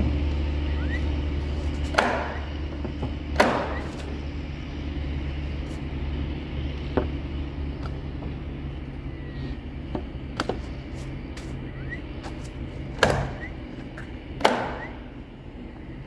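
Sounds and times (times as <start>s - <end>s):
low steady hum: 0.0s - 16.0s
wooden knocks and clatter: 1.7s - 4.1s.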